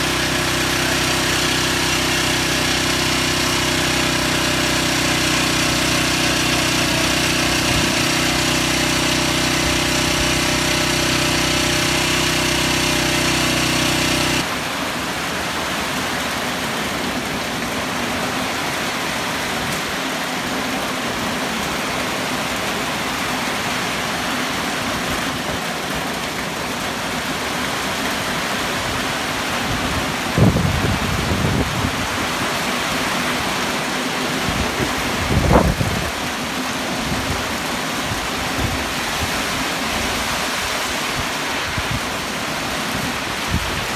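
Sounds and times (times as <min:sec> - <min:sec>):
heavy rain hissing: 0:00.0 - 0:43.9
steady motor hum: 0:00.0 - 0:43.9
wind gusts buffeting microphone: 0:29.8 - 0:32.2, 0:34.6 - 0:36.2.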